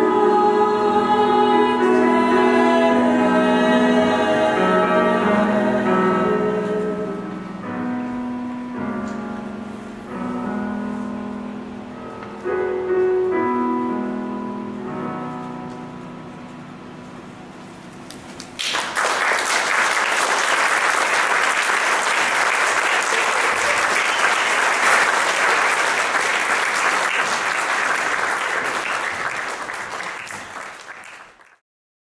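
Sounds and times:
audience applauding: 0:18.1 - 0:31.6.

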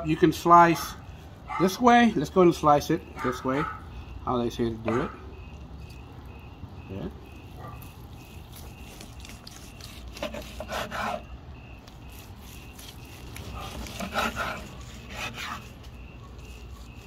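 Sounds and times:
knife sawing through meat: 0:08.5 - 0:17.0
knife scraping wooden cutting board: 0:08.6 - 0:11.3, 0:12.0 - 0:17.0.

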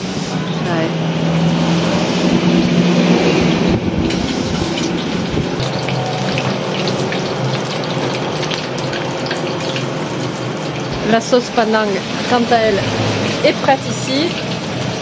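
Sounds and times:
fish deep-frying in oil: 0:04.0 - 0:15.0.

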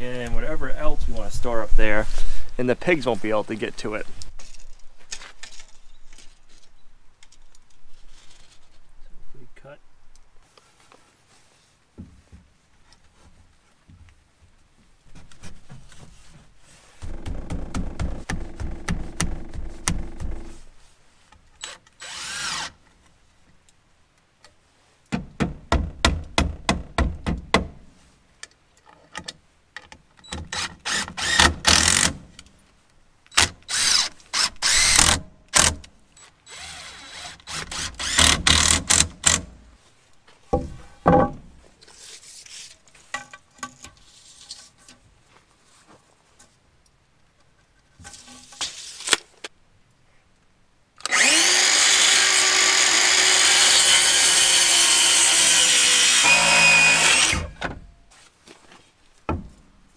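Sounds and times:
cordless drill driving screws: 0:21.6 - 0:22.8, 0:30.5 - 0:32.1, 0:33.4 - 0:35.8, 0:36.5 - 0:39.5, 0:51.0 - 0:57.6.

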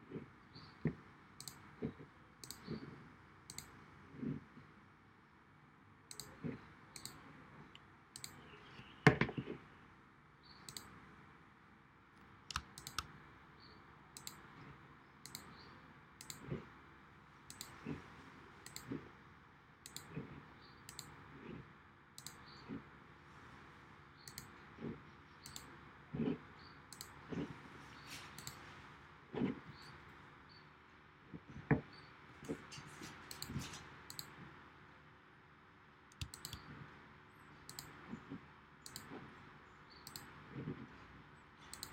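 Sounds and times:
computer mouse button clicks: 0:36.1 - 0:36.6.

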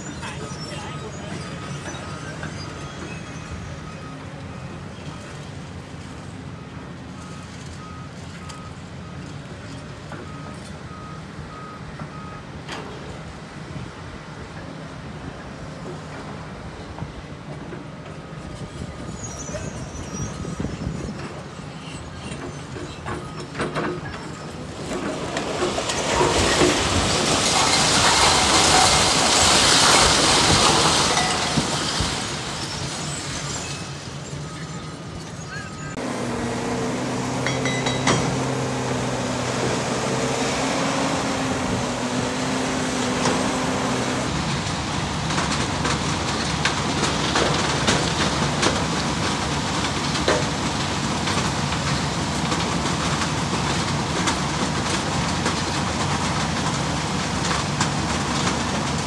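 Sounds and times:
excavator engine running: 0:35.9 - 0:59.0
heavy machinery din: 0:35.9 - 0:59.0
metal clanks: 0:37.4 - 0:38.8.

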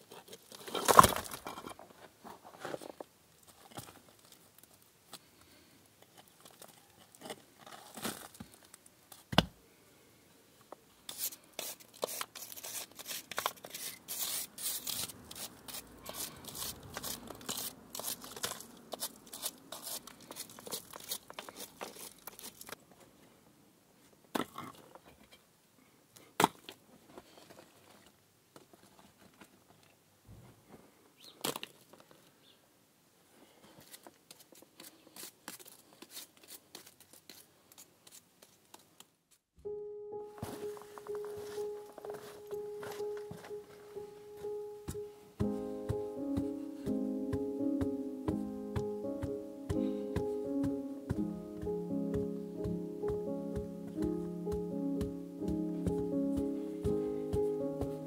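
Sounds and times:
hand tool scraping stones and soil: 0:00.0 - 0:04.4, 0:06.0 - 0:08.7, 0:11.1 - 0:22.8, 0:33.6 - 0:38.6, 0:40.5 - 0:43.6
rattling of falling rubble: 0:00.6 - 0:01.9.

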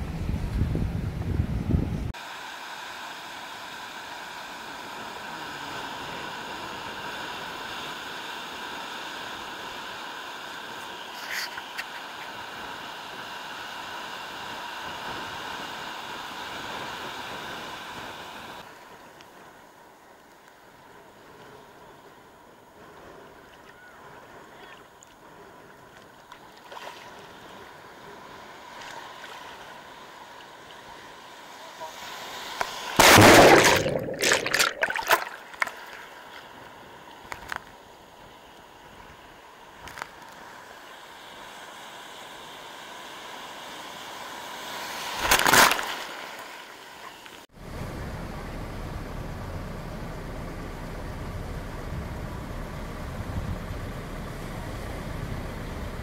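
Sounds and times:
wind buffeting microphone: 0:00.0 - 0:02.1
wind: 0:00.0 - 0:56.0
ocean surf: 0:02.1 - 0:56.0.

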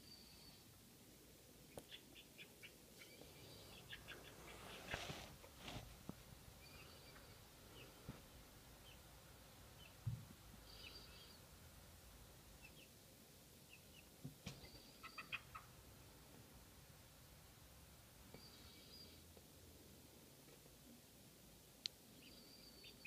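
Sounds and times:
chicks peeping: 0:01.7 - 0:05.3, 0:12.6 - 0:13.0, 0:13.6 - 0:15.8.

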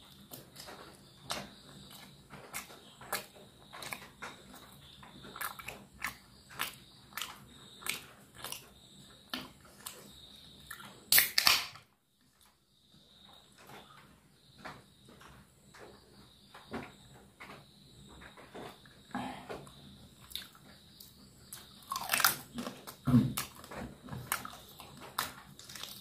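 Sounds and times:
close-miked chewing: 0:00.0 - 0:11.1, 0:19.6 - 0:26.0.

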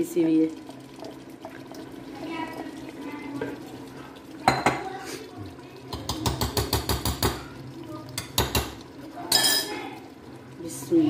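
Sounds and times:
wooden spoon tapping clay pot: 0:05.9 - 0:07.5, 0:08.2 - 0:08.8.

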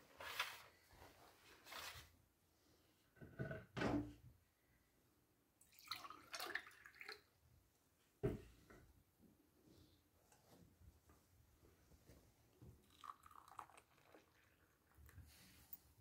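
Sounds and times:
water splashing from pitcher: 0:05.7 - 0:07.2.

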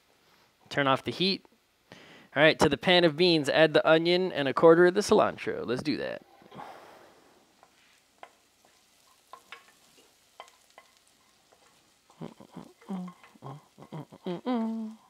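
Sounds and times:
spoon stirring beans in pan: 0:07.5 - 0:14.2
spoon knocking on pan: 0:09.3 - 0:09.8.

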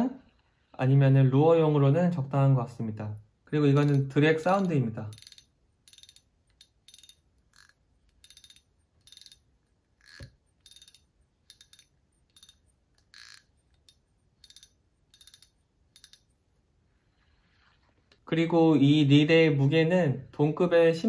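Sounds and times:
fishing reel drag clicking: 0:03.8 - 0:16.3.

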